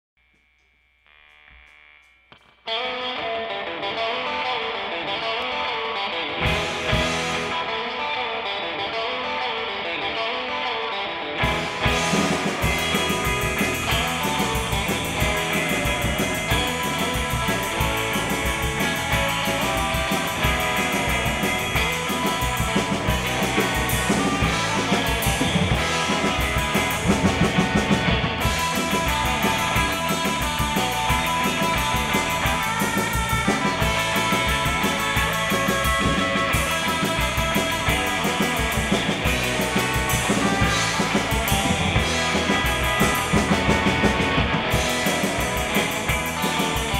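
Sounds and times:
guitar: 0:00.2 - 0:46.9
rock music: 0:02.3 - 0:46.9
drum kit beat: 0:06.4 - 0:07.6, 0:11.4 - 0:46.9.

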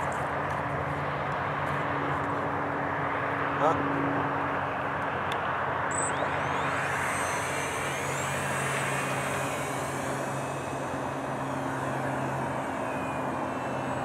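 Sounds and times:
electric motor propeller whine: 0:00.0 - 0:14.0.

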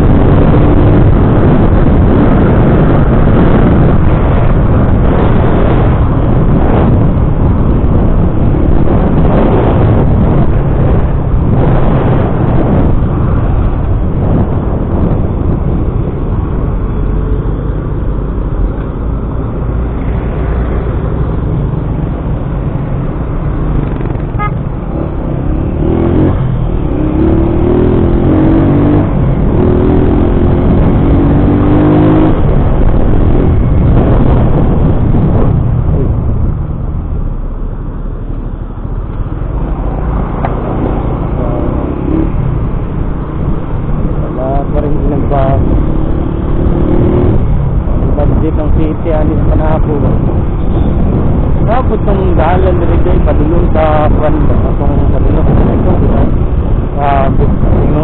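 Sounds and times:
passing vehicles: 0:00.0 - 0:58.0
wind and road rush: 0:00.0 - 0:58.0
motorcycle engine: 0:19.9 - 0:37.5.

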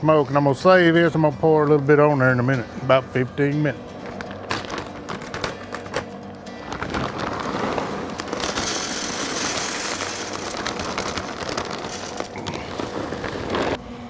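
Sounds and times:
wood pellets pouring rattle: 0:06.7 - 0:13.8.

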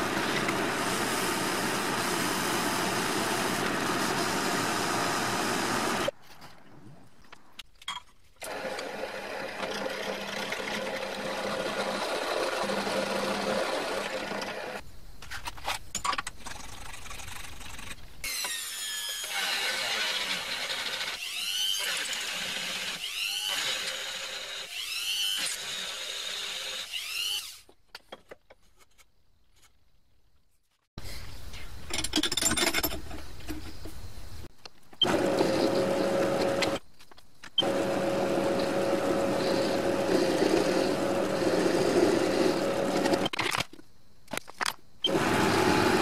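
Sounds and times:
rotary tool grinding: 0:37.6 - 0:43.3.

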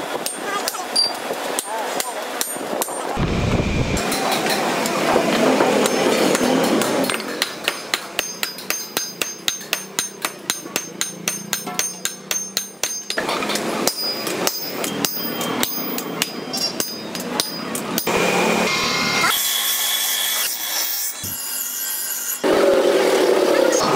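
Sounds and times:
hammer striking metal on anvil: 0:05.6 - 0:18.2.

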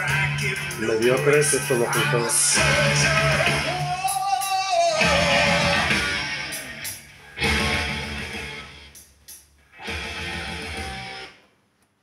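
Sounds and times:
song over loudspeakers: 0:00.0 - 0:08.8.

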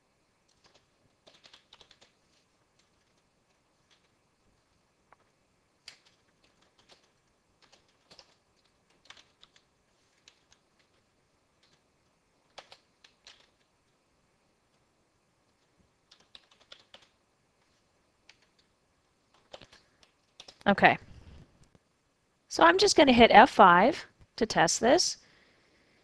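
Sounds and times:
keyboard typing: 0:00.5 - 0:04.2, 0:05.8 - 0:14.0, 0:15.5 - 0:17.2, 0:18.2 - 0:20.7.

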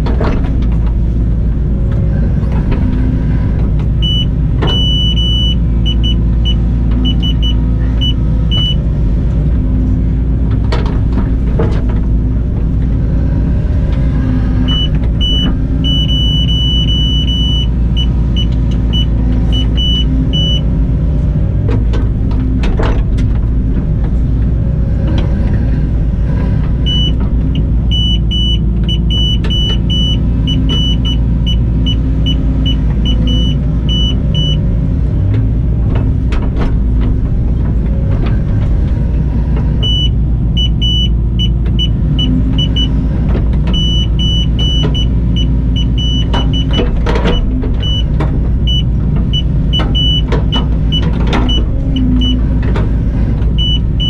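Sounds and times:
excavator engine and hydraulics: 0:00.0 - 0:54.0.

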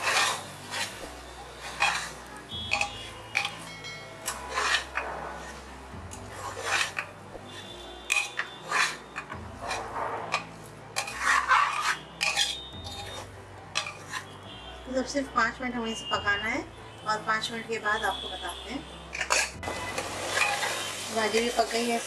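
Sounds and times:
spoon scraping metal pot: 0:00.0 - 0:05.6, 0:06.2 - 0:14.4, 0:19.1 - 0:19.6, 0:20.2 - 0:22.0.

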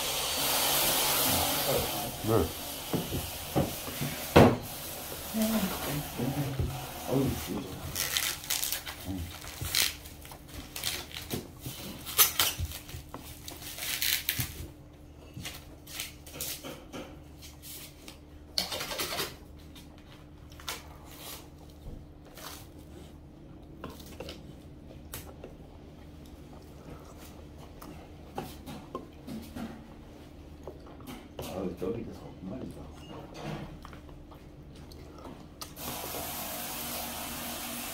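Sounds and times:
chewing and mouth noises: 0:20.0 - 0:29.2, 0:33.7 - 0:35.8.

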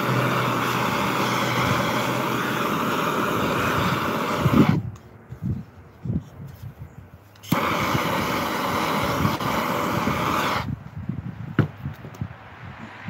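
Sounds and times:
propane torch flame hissing: 0:00.0 - 0:05.0, 0:07.3 - 0:10.9.

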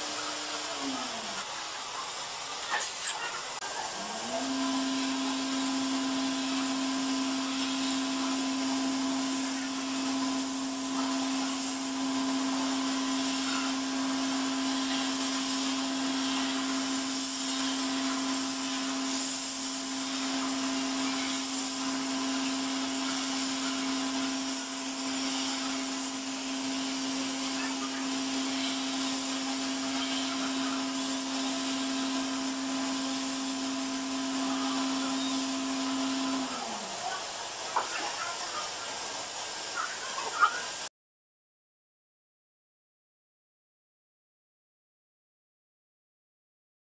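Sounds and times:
milling machine spindle whine: 0:00.0 - 0:40.8
hiss: 0:06.4 - 0:08.3, 0:09.2 - 0:10.1, 0:14.6 - 0:31.5.

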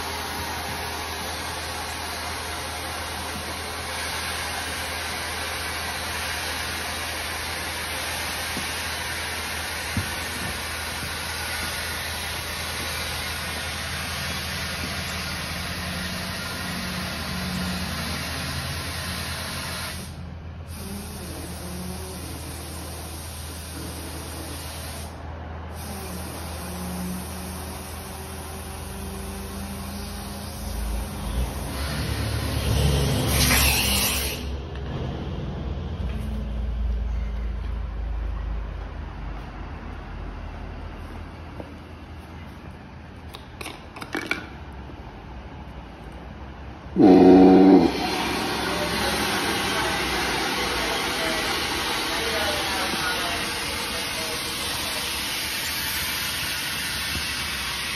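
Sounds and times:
compressed air hissing through hose: 0:00.0 - 0:34.5, 0:47.0 - 0:57.9.

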